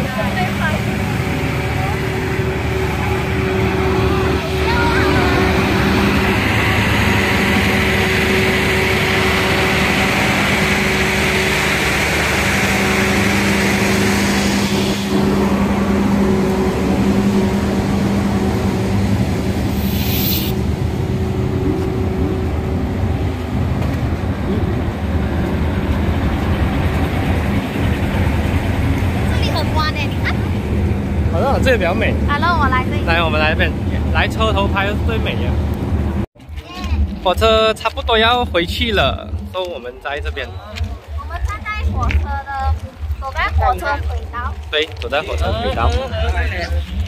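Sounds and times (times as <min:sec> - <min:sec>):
diesel train engine idling: 0:00.0 - 0:36.3
brief hiss: 0:19.7 - 0:20.6.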